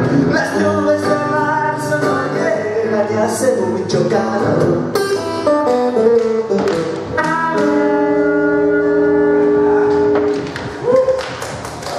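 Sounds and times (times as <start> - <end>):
strummed acoustic guitar: 0.0 - 10.4
harmonica playing: 7.1 - 9.9.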